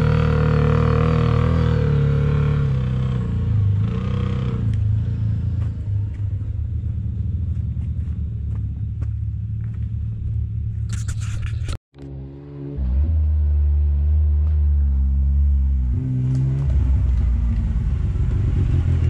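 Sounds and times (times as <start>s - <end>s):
utility vehicle engine running: 0.0s - 19.0s
scraping clatter: 10.8s - 11.8s.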